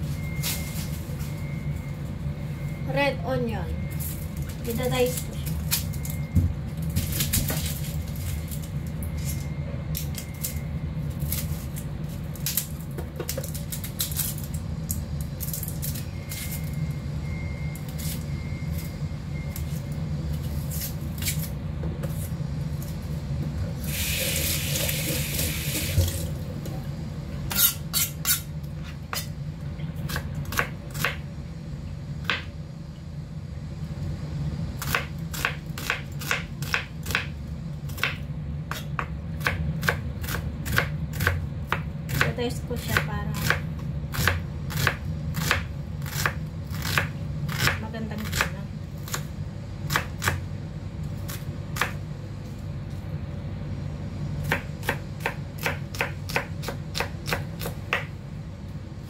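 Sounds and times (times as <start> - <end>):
steady low hum: 0.0 - 59.0
kitchen tap running: 23.9 - 26.4.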